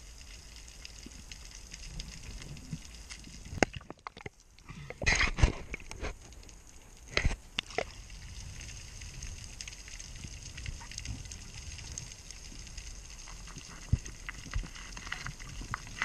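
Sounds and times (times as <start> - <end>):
faint crackling: 0.0 - 16.0
underwater rumble: 0.0 - 16.0.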